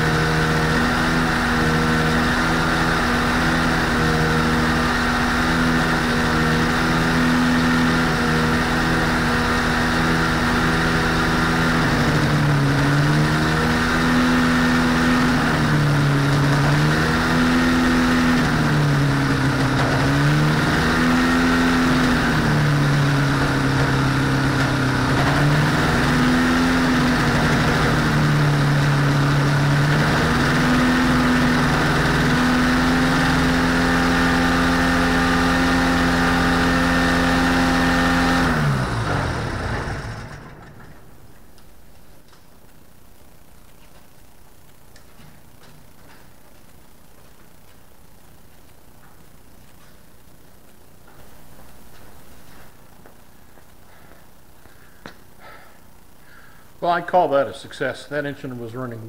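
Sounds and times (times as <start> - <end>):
two-stroke engine idling: 0.0 - 41.6.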